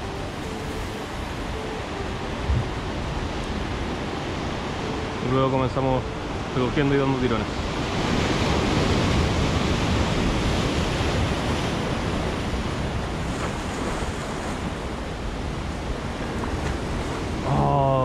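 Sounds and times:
wind buffeting microphone: 0:00.0 - 0:05.2
heavy surf over rocks: 0:00.0 - 0:18.0.

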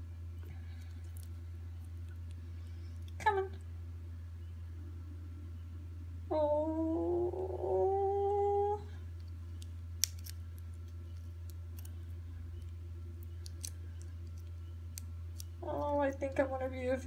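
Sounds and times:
woman humming: 0:06.3 - 0:09.0.

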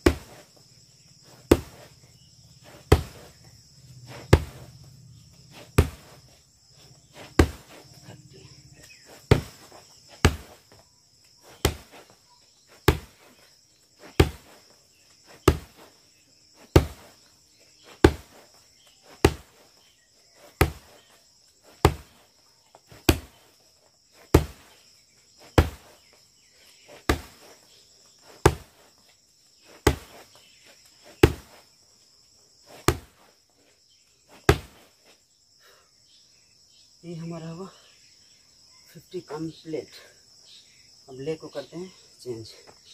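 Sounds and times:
kicks striking padded bag: 0:00.0 - 0:00.4, 0:01.3 - 0:02.0, 0:02.6 - 0:03.4, 0:04.0 - 0:04.8, 0:05.5 - 0:06.3, 0:07.1 - 0:08.1, 0:09.0 - 0:10.7, 0:11.4 - 0:12.1, 0:12.8 - 0:13.3, 0:14.0 - 0:14.6, 0:15.3 - 0:15.9, 0:16.6 - 0:17.2, 0:17.9 - 0:18.5, 0:19.1 - 0:19.6, 0:20.5 - 0:21.0, 0:21.7 - 0:22.2, 0:22.9 - 0:23.4, 0:24.2 - 0:24.7, 0:25.4 - 0:26.0, 0:26.9 - 0:27.5, 0:28.2 - 0:28.9, 0:29.7 - 0:30.4, 0:31.1 - 0:31.6, 0:32.7 - 0:33.2, 0:34.4 - 0:34.9.

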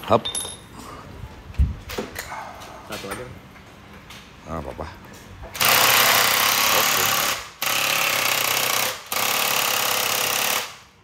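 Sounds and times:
impact wrench hammering on nut: 0:05.6 - 0:10.8.

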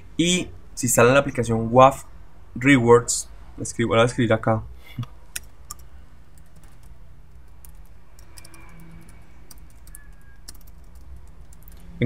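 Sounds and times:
keyboard keystroke clicks: 0:07.6 - 0:11.8.

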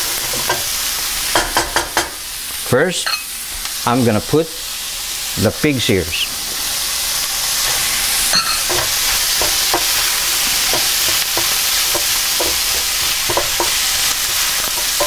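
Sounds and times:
food sizzling in a frying pan: 0:00.0 - 0:15.0
wooden spoon knocking pan: 0:10.6 - 0:15.0.

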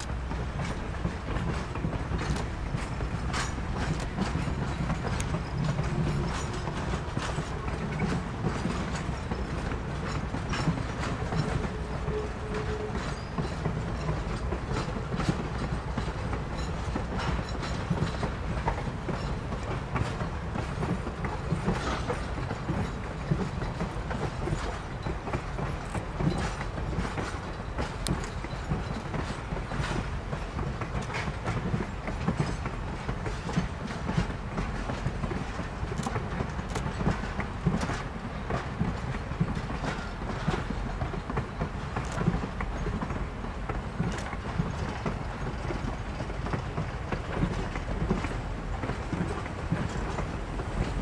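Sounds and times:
train wheels rumbling on rails: 0:00.0 - 0:51.0.

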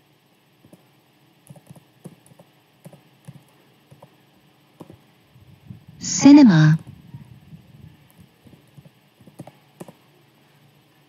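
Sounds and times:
computer keyboard clicks: 0:01.4 - 0:04.1, 0:08.1 - 0:10.0.

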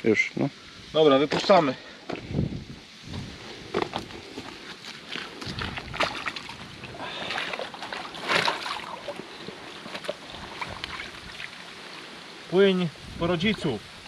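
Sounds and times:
water sloshing and splashing: 0:03.7 - 0:12.5
fish splashing into water: 0:05.4 - 0:11.8.

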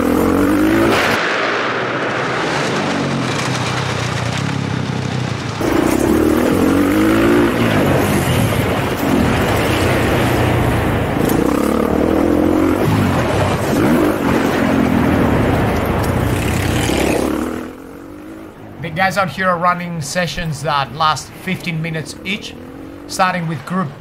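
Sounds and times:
dirt bike engine revving: 0:00.0 - 0:01.4, 0:04.2 - 0:19.1, 0:21.2 - 0:23.9.

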